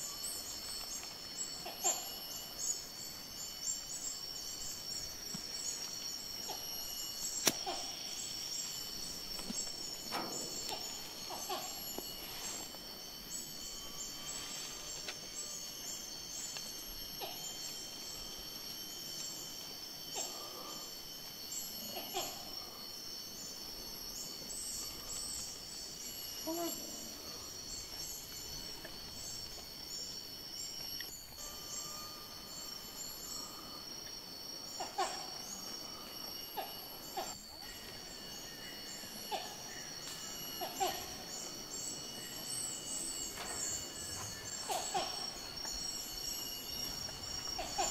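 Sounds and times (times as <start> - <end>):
high-pitched insect drone: 0.0 - 47.9.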